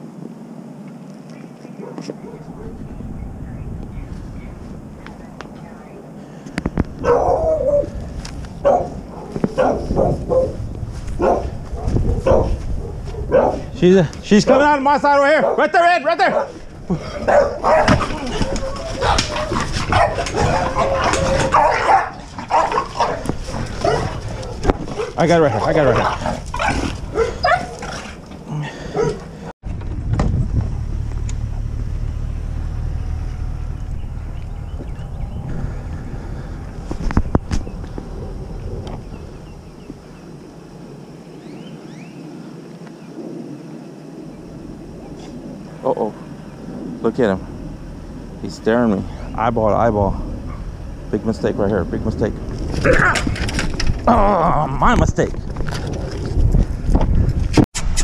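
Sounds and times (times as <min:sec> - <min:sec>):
dog barking: 0:01.8 - 0:02.8, 0:07.0 - 0:08.0, 0:08.6 - 0:10.6, 0:11.2 - 0:13.7, 0:15.4 - 0:15.7, 0:16.3 - 0:16.6, 0:17.2 - 0:25.8, 0:26.6 - 0:27.8, 0:28.9 - 0:29.2
low rumble: 0:02.4 - 0:06.0, 0:06.7 - 0:14.8, 0:29.6 - 0:41.1, 0:43.1 - 0:57.6.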